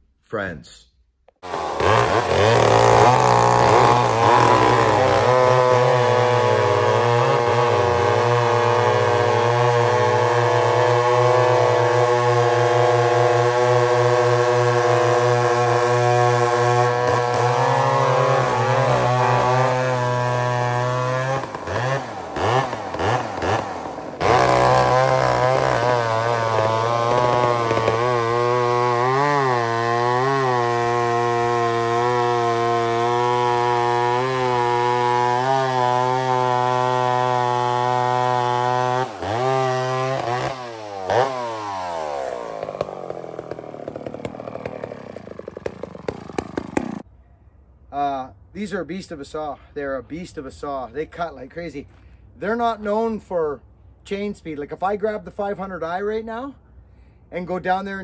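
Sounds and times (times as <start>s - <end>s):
chainsaw cutting log: 1.4s - 47.1s.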